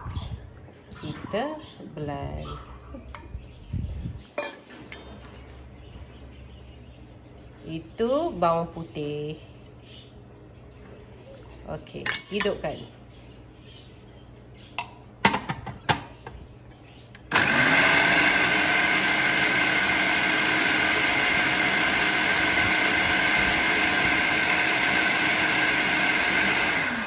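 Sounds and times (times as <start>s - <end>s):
food processor motor running: 17.2s - 27.0s.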